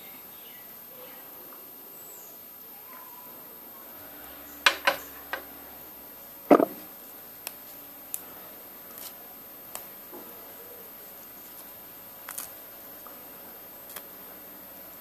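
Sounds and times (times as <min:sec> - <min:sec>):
ceramic plate knocking on countertop: 0:06.5 - 0:06.8.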